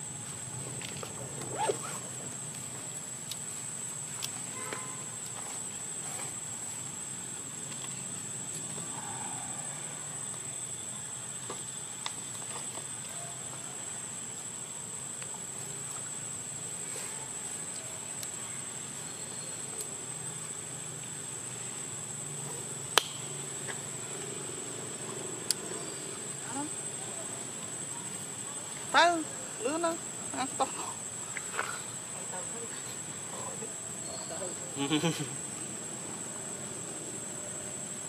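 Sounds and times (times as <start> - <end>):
high-pitched insect drone: 33.3 - 35.7.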